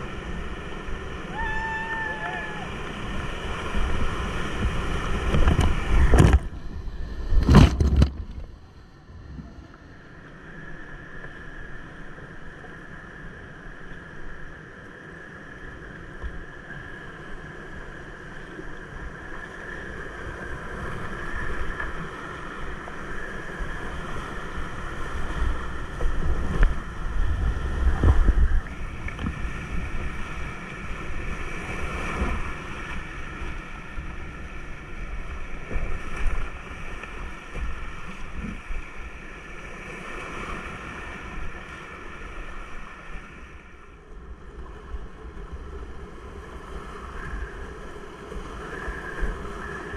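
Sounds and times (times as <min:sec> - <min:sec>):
whitewater rushing: 0:00.0 - 0:06.4
wind buffeting microphone: 0:01.2 - 0:09.7, 0:25.6 - 0:32.6.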